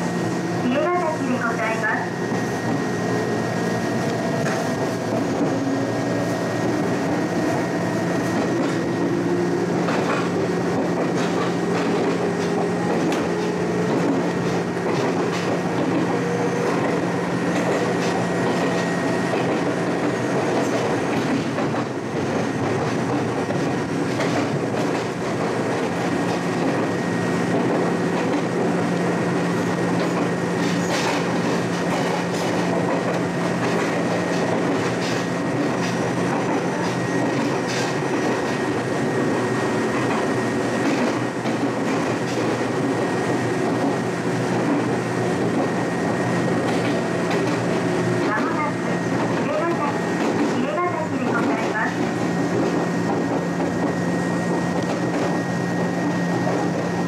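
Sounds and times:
electric train running hum: 0.0s - 57.0s
wheels clacking over rail joints: 8.2s - 26.9s, 29.9s - 39.0s, 40.0s - 55.4s.

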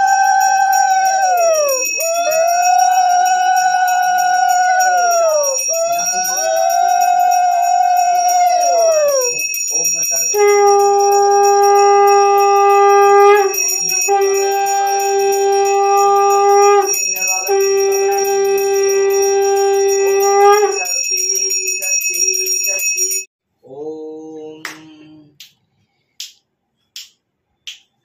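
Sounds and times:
brass hand bell ringing rapidly: 0.0s - 23.3s
conch shell blasts: 10.4s - 20.8s
finger snaps: 26.2s - 28.0s.

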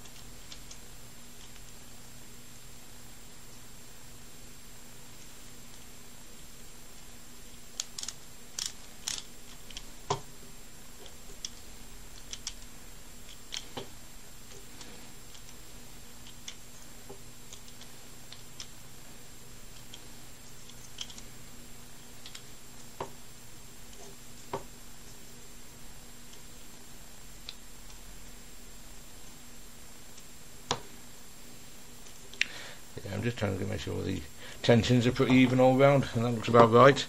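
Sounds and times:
faint steady hum: 0.0s - 37.0s
plastic pieces handled: 7.8s - 9.9s.

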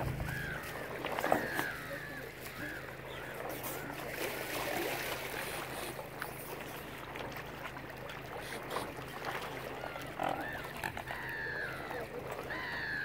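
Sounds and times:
low hum: 0.0s - 1.9s
lapping water: 0.0s - 13.0s
wind: 0.0s - 13.0s.

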